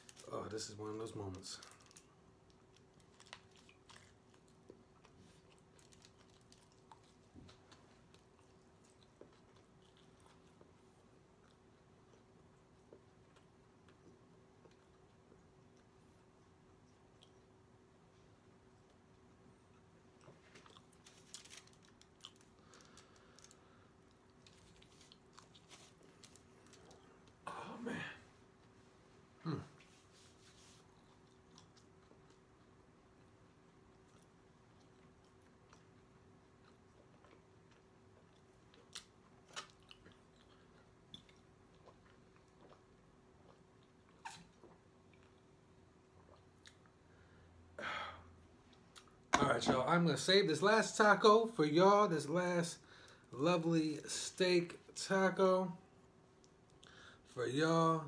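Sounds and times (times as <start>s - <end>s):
faint steady hum: 0.0s - 58.0s
foil crinkling: 21.0s - 23.6s
person eating and drinking: 33.9s - 47.1s.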